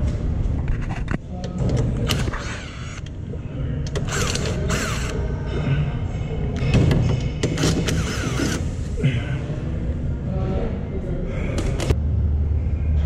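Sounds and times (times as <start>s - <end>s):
ratchet wrench clicking: 3.9s - 5.2s, 7.4s - 8.6s.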